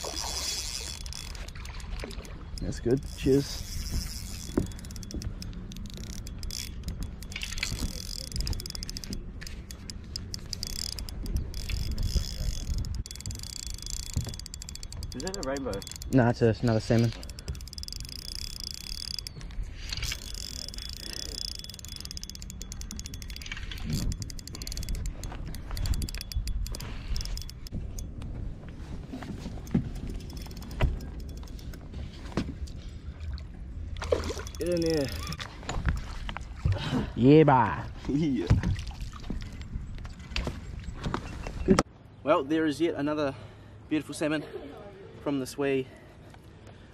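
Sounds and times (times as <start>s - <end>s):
fishing reel clicking: 0.0s - 28.1s, 29.6s - 31.8s, 34.2s - 35.4s.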